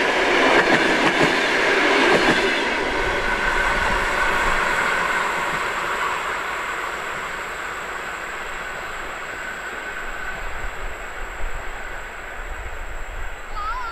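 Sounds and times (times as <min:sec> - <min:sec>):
train wheels on rails: 0:00.0 - 0:13.9.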